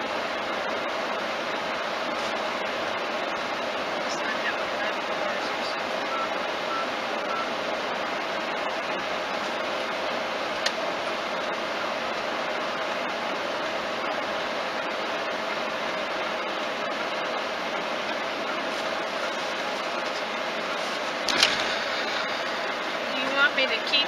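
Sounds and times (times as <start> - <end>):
sharp click: 21.3 - 21.7.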